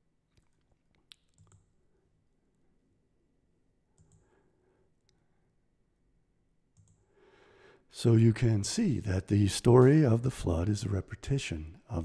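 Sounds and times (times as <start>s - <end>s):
faint computer mouse clicks: 4.0s - 4.3s, 6.8s - 7.0s.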